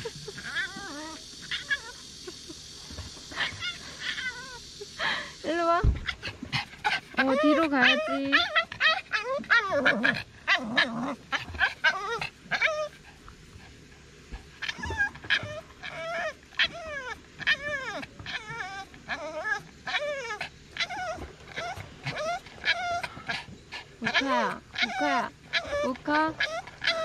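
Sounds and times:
dog whining and yipping: 0.3 - 2.0, 6.9 - 13.0, 14.6 - 27.0.

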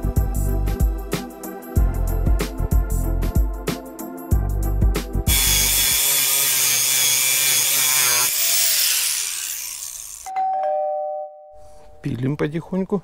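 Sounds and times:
background music: 0.0 - 8.3
cut-off wheel cutting steel: 5.3 - 10.3.

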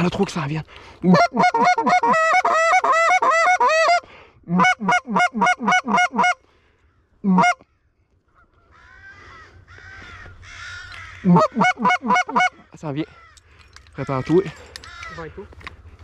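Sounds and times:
goose honking: 1.1 - 6.4, 7.3 - 7.6, 9.9 - 12.7.

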